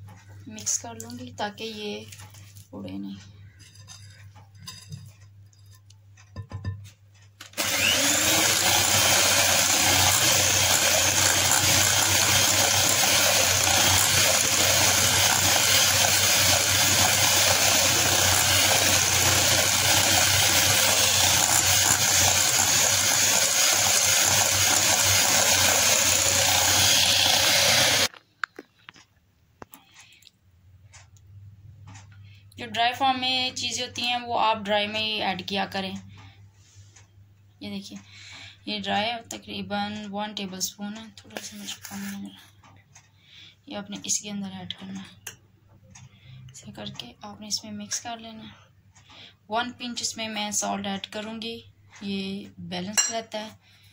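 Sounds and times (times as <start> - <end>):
spatula tapping and scraping bowl: 3.5 - 7.0, 53.0 - 53.3
electric hand mixer running: 7.6 - 28.1.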